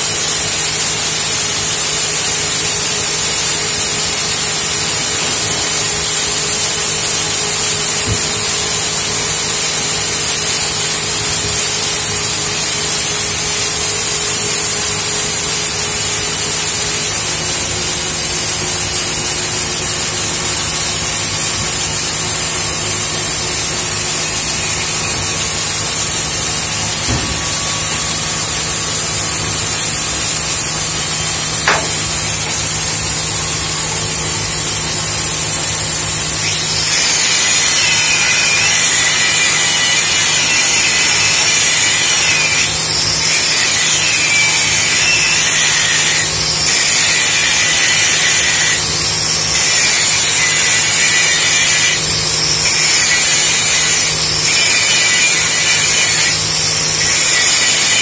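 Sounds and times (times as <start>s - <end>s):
steady hum: 0.0s - 38.4s
welding arc hiss and crackle: 0.0s - 58.0s.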